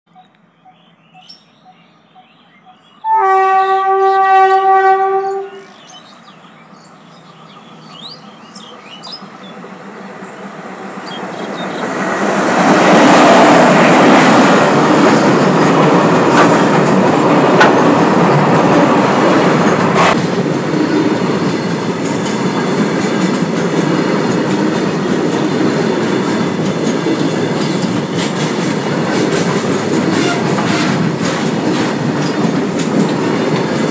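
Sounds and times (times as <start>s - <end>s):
locomotive horn: 3.0s - 5.7s, 30.1s - 31.1s
wagons rumbling over rails: 3.2s - 33.9s.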